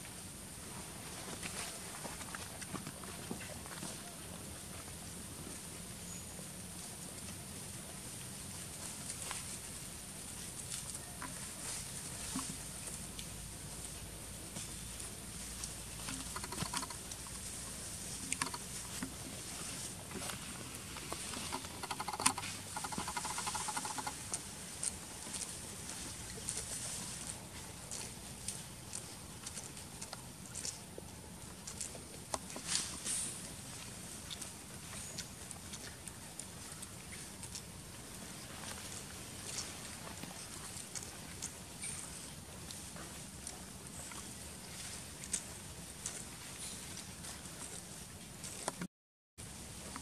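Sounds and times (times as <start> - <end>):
animals rustling in grass: 0.0 - 50.0
steady high hiss: 3.5 - 28.9
monkeys chattering: 21.2 - 24.3.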